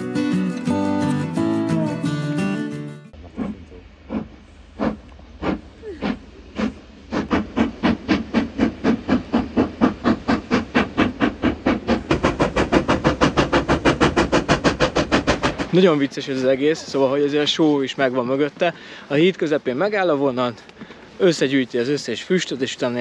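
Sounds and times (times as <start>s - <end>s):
steam locomotive chuffing: 3.1s - 18.0s.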